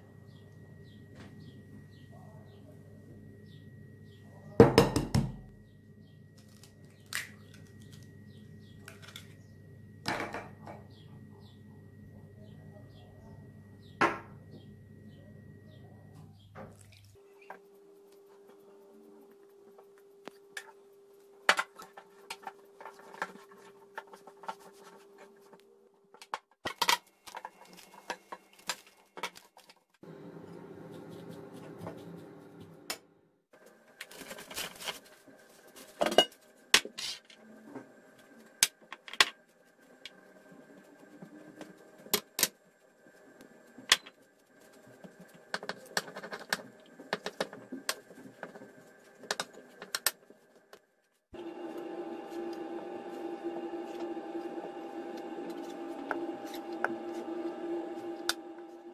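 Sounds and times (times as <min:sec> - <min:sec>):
faint steady hum: 0:00.0 - 0:26.2
hands mixing dough in bowl: 0:16.6 - 0:25.7, 0:27.2 - 0:32.9, 0:38.2 - 0:58.9
rolling pin rolling dough: 0:17.4 - 0:25.6, 0:39.5 - 0:50.7, 0:51.4 - 0:58.9.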